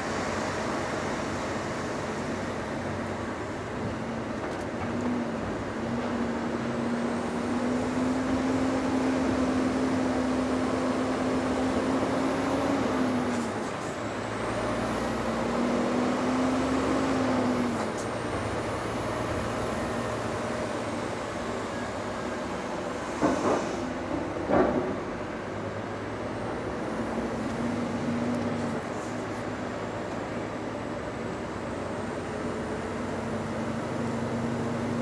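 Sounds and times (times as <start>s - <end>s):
lorry engine accelerating: 6.0s - 21.8s.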